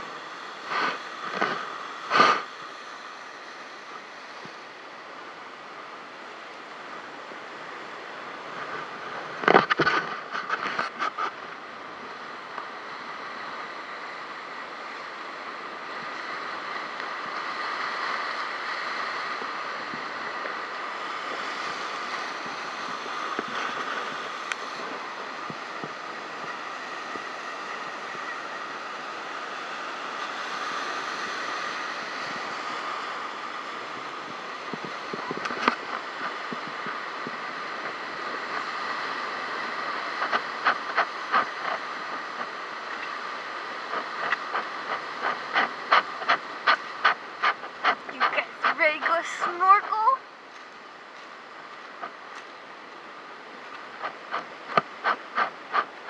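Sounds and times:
wind on microphone: 0.0s - 56.0s
surf breaking on rocks: 15.9s - 50.1s.

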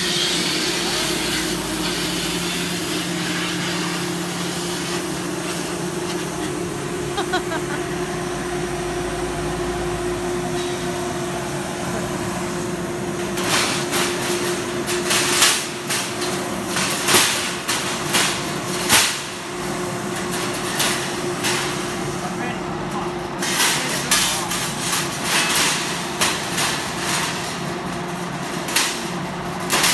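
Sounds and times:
plasma cutter machine hum: 0.0s - 29.9s
sheet metal parts clanking: 22.9s - 29.9s.

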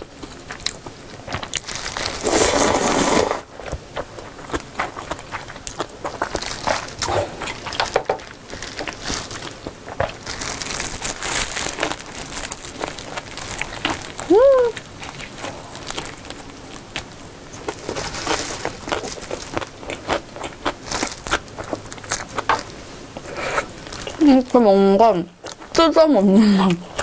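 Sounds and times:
chewing with mouth clicks: 3.6s - 11.0s, 11.7s - 24.3s, 25.4s - 25.8s, 26.6s - 27.0s
person humming: 14.3s - 14.8s.

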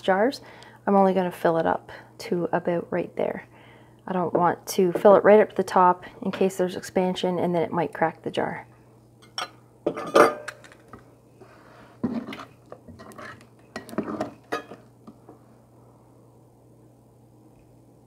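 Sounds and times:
faint low hum: 0.0s - 18.0s
ladle scraping in ceramic bowl: 12.0s - 14.8s.

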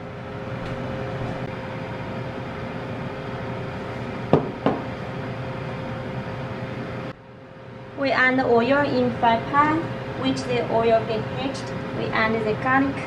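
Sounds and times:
mechanical hum: 0.0s - 13.0s
sharp knocks: 4.3s - 4.9s.

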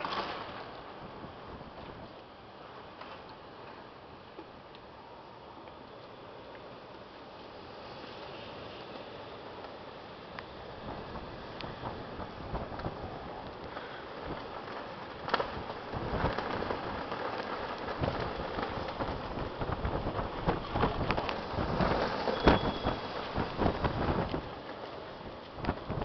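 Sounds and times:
heavy rain falling: 6.8s - 26.0s
wind gusts buffeting microphone: 9.4s - 26.0s.

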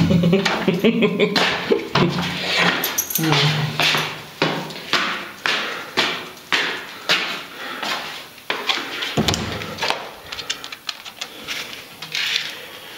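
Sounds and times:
footsteps tapping and scuffing: 0.4s - 0.7s, 1.3s - 10.5s
dull deep thump: 9.2s - 9.7s.

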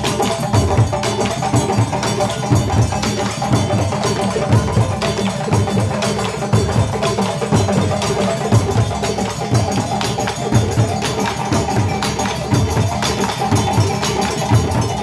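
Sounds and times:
drum ensemble playing: 0.0s - 15.0s.

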